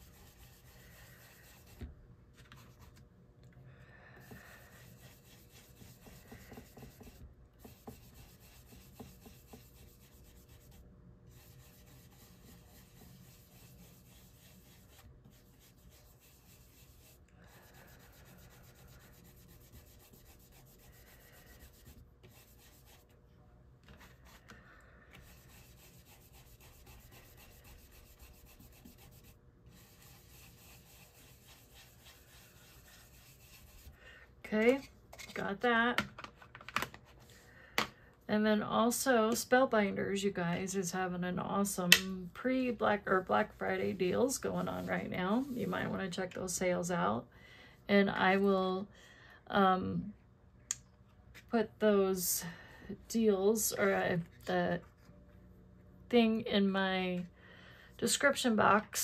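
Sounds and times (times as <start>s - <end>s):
tool rubbing on paper: 0.0s - 1.9s, 4.2s - 23.1s, 25.2s - 34.0s.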